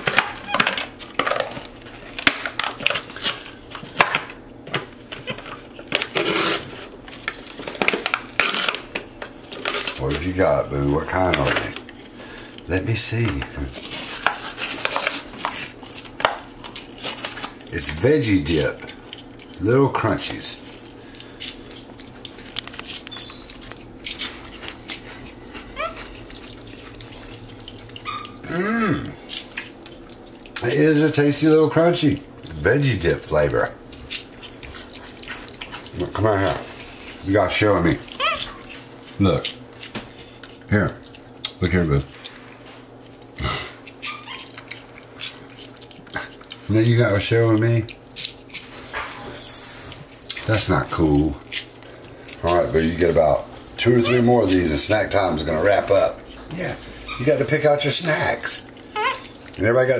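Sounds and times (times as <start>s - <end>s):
monkey crunching snacks: 13.2s - 31.4s, 33.8s - 59.9s
monkey squeaky call: 38.1s - 38.6s.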